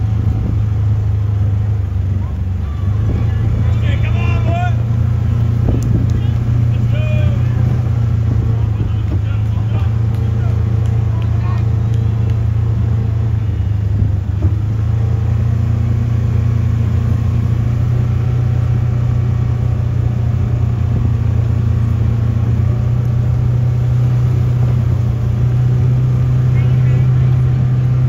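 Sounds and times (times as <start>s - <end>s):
engine humming: 0.0s - 28.0s.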